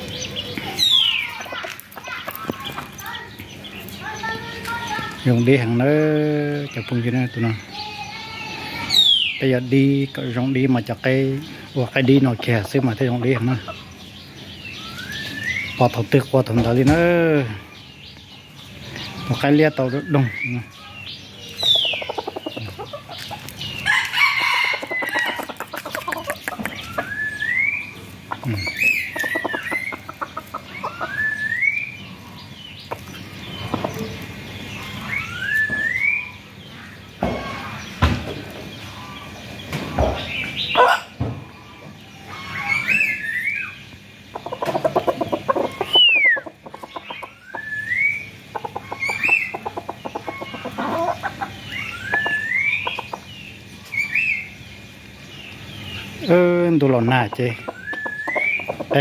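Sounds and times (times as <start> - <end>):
rooster clucking: 21.7 - 27.2, 28.2 - 31.6, 44.3 - 47.7, 48.4 - 53.3, 57.2 - 59.0.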